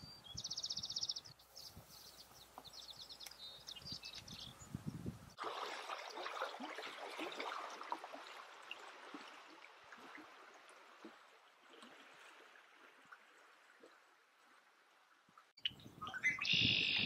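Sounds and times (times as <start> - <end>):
creek babbling and trickling: 5.3 - 17.0.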